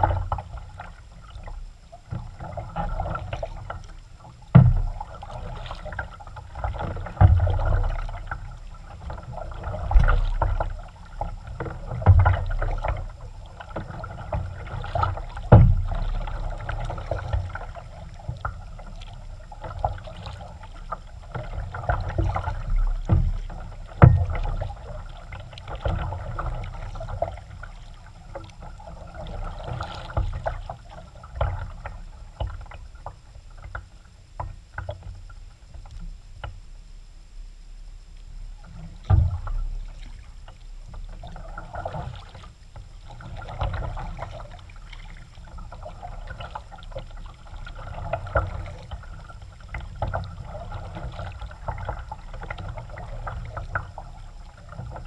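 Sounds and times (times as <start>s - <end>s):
paddle splashing water: 0.0s - 35.8s, 38.6s - 55.0s
low rumble: 8.6s - 13.4s.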